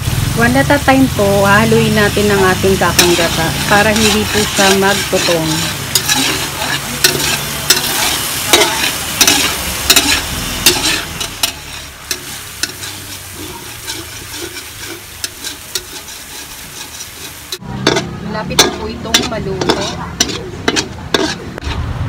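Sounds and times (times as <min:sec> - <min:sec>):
cream bubbling and sizzling in wok: 0:00.0 - 0:22.0
metal spatula scraping a pan: 0:01.2 - 0:21.9.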